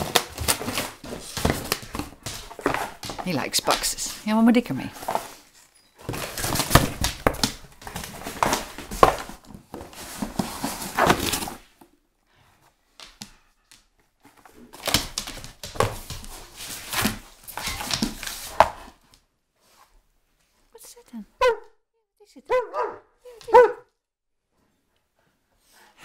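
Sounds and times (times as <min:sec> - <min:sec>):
dog tearing and chewing cardboard: 0:00.0 - 0:03.9, 0:05.0 - 0:11.8, 0:14.4 - 0:19.0.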